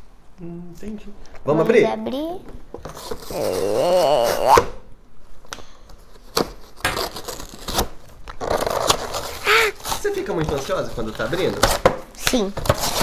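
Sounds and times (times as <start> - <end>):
wavering voice: 3.3 - 4.7
cardboard and paper tearing: 6.5 - 11.9, 12.6 - 13.0.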